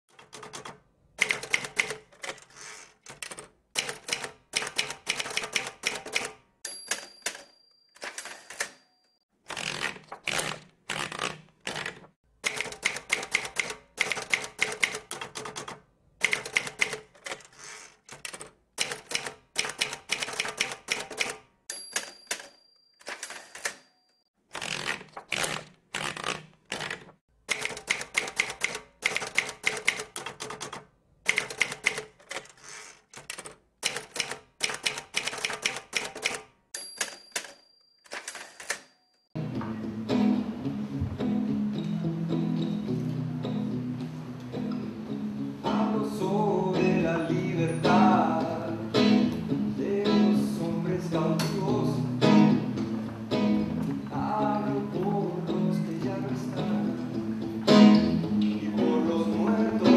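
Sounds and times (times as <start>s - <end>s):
typewriter key strikes: 0.1s - 2.4s, 3.1s - 8.8s, 9.5s - 17.4s, 18.1s - 23.9s, 24.8s - 32.6s, 33.2s - 38.9s
typewriter bell ring: 5.9s - 9.2s, 21.0s - 24.3s, 36.0s - 39.4s.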